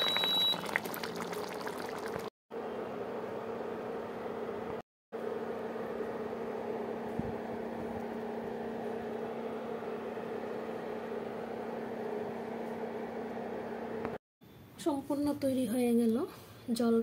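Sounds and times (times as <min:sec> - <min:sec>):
mechanical hum and whir: 0:02.5 - 0:14.8.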